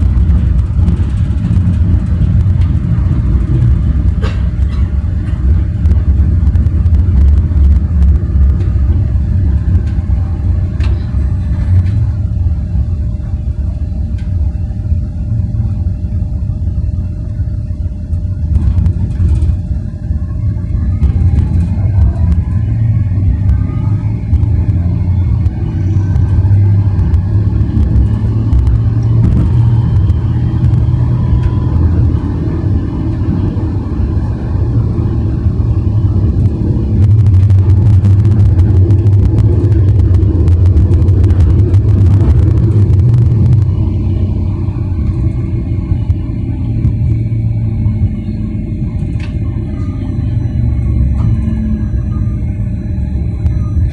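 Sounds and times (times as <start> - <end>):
tram drive whine: 0.0 - 53.9
tram wheels rumbling: 0.0 - 53.9.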